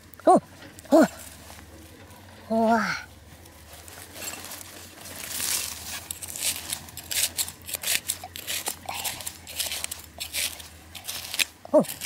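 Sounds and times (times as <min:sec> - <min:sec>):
clods of earth crumbling: 0:00.0 - 0:12.0
trowel scraping dry soil: 0:03.6 - 0:12.0.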